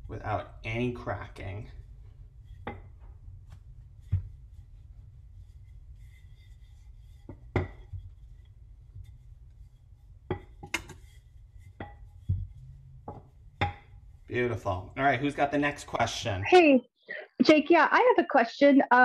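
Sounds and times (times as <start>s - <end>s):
low steady hum: 0.0s - 16.4s
rolling pin rolling dough: 0.1s - 15.5s
rolling pin knocks: 10.3s - 11.1s.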